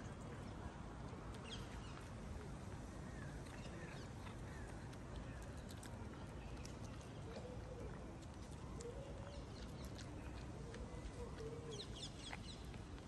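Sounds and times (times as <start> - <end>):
cat crunching kibble: 3.6 - 11.2.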